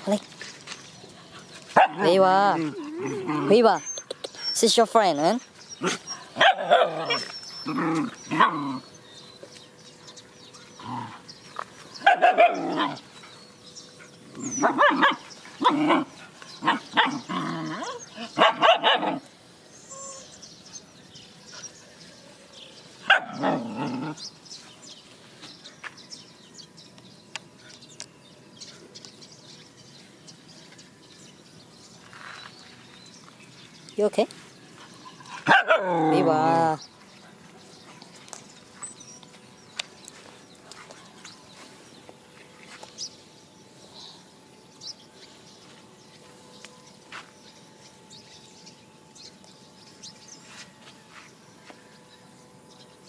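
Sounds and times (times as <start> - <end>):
dogs barking: 1.7 - 3.8, 5.8 - 8.9, 12.0 - 13.2, 14.0 - 19.3, 23.0 - 24.2, 35.0 - 36.7.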